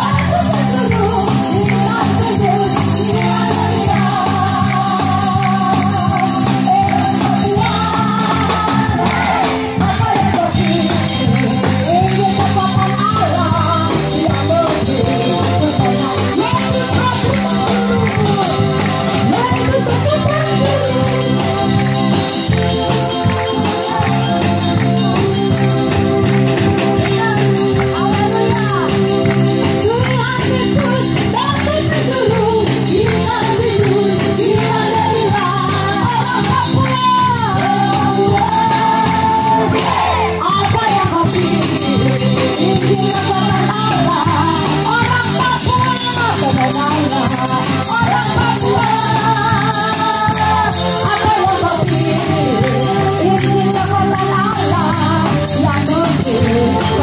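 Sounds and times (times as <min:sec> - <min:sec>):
worship band music over loudspeakers: 0:00.0 - 0:57.0.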